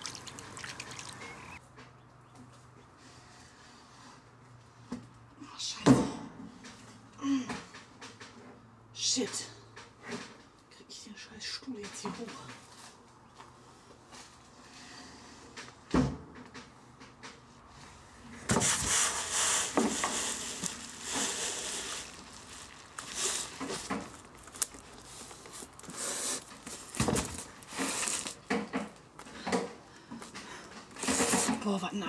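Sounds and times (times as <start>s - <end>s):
chair scraping and rustling: 17.8s - 29.7s, 30.8s - 31.7s.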